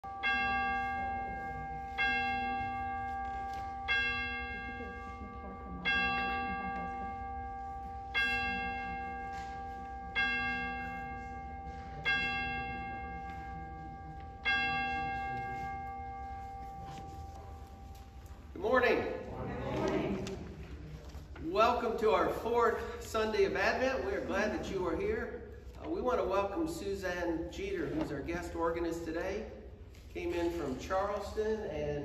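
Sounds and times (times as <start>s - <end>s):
church bell tolling: 0.0s - 20.3s.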